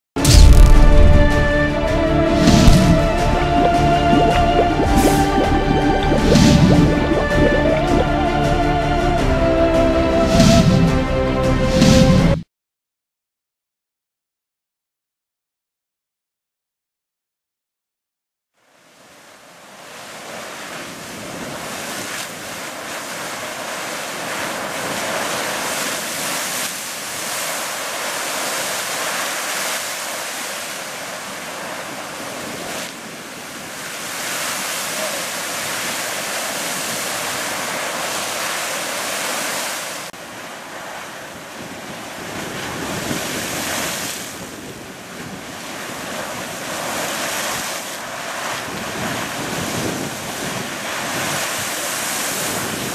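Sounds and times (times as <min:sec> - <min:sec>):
geyser rush of water and steam: 0:19.0 - 0:52.9
wind buffeting microphone: 0:48.6 - 0:52.9.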